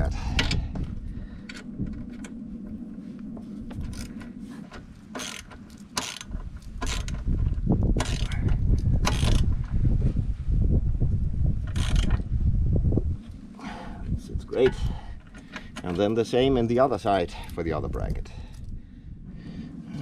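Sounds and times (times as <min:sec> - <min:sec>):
low rumble: 0:00.0 - 0:20.0
metal clicks and scrapes: 0:03.8 - 0:09.5.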